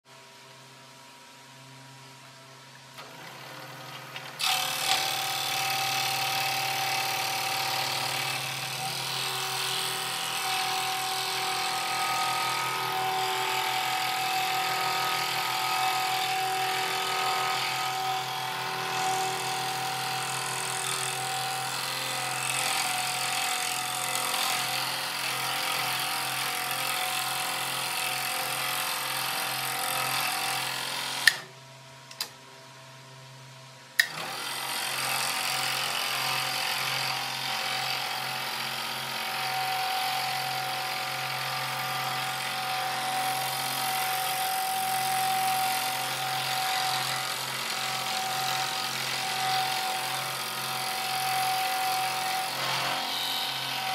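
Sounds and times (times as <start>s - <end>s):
scroll saw cutting wood: 3.0s - 31.6s, 34.0s - 53.9s
saw switch click: 31.2s - 31.5s
small click: 32.1s - 32.4s.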